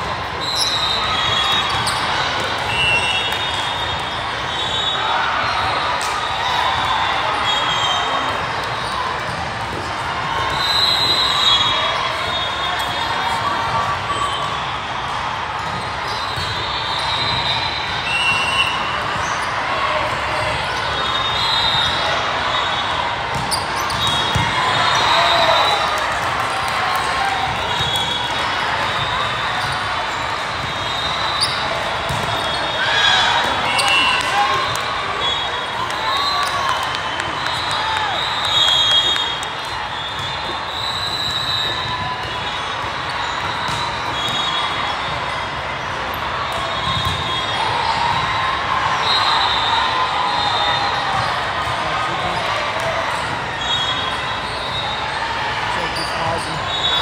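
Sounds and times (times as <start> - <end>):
shoes squeaking on court: 0.5 - 2.4, 23.3 - 24.6, 30.6 - 34.2
volleyballs hit and bouncing: 5.5 - 10.6, 23.2 - 48.7
volleyballs struck and bouncing: 31.6 - 32.8.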